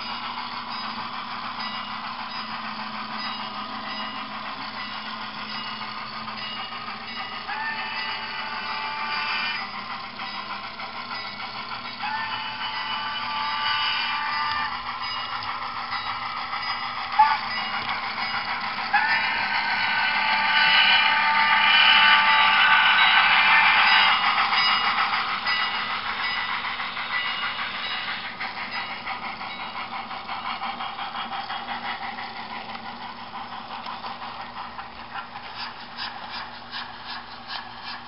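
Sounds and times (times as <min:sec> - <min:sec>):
model train rolling: 0:00.0 - 0:38.0
regular clicking of train: 0:00.0 - 0:38.0
high multi-pitched whistle: 0:11.2 - 0:29.9.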